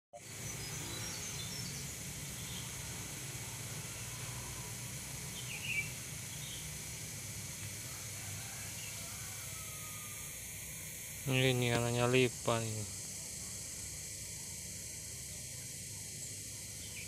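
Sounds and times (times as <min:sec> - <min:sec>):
faint bird chirps: 0:05.3 - 0:06.7, 0:16.0 - 0:17.0.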